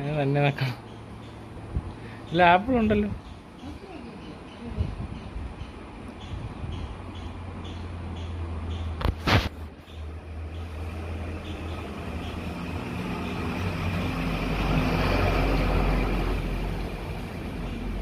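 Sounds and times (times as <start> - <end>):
vehicle engine rumbling past: 3.8 - 18.0.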